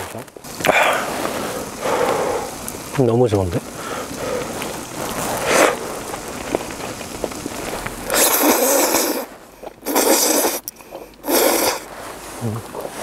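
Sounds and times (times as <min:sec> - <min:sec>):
person blowing and slurping food: 0:04.5 - 0:13.0.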